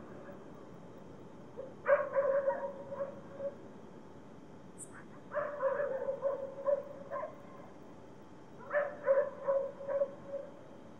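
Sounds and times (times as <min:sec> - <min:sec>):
dogs barking: 0:01.9 - 0:03.6, 0:05.3 - 0:07.4, 0:08.6 - 0:10.5.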